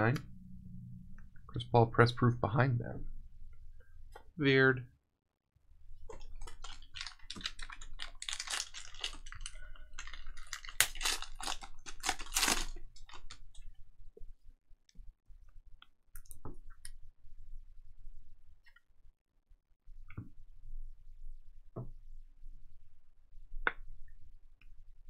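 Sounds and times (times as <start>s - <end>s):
foil wrapper crinkling and tearing: 6.2s - 13.6s.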